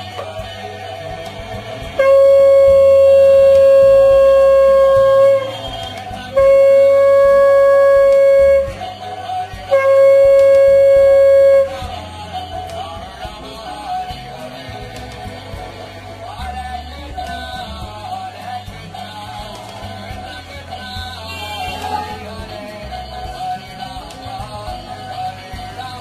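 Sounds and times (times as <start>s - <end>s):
conch shell blowing: 1.9s - 12.0s, 21.3s - 22.3s.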